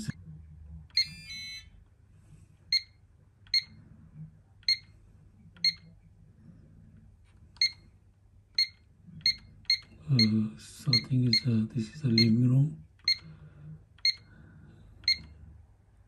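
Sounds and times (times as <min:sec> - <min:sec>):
alarm keypad beeps: 0:01.0 - 0:01.7, 0:02.7 - 0:03.8, 0:05.6 - 0:05.9, 0:08.6 - 0:12.4, 0:13.0 - 0:13.3, 0:14.0 - 0:14.3, 0:15.0 - 0:15.3.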